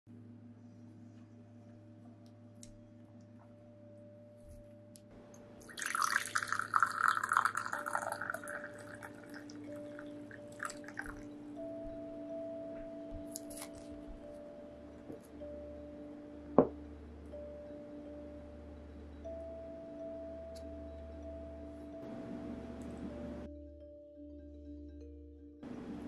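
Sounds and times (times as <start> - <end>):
water drips: 5.3 - 12.0
water pouring into glass cup: 5.6 - 11.3.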